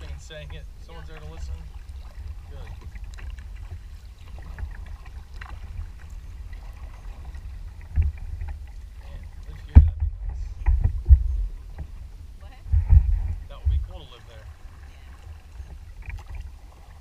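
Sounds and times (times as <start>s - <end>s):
low rumble: 0.0s - 17.0s
paddle splashes: 0.0s - 17.0s
knocks against boat: 9.5s - 11.9s, 12.5s - 14.1s.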